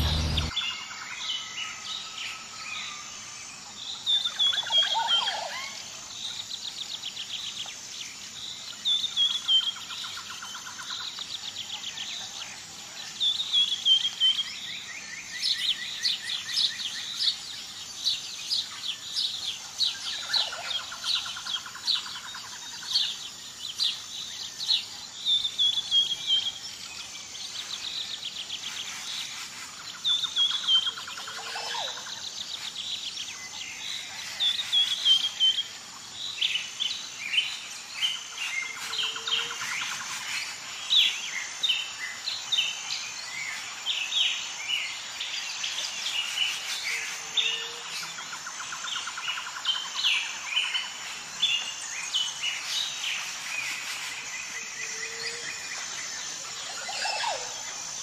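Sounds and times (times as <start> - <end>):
songbirds singing and calling: 0.0 - 58.0.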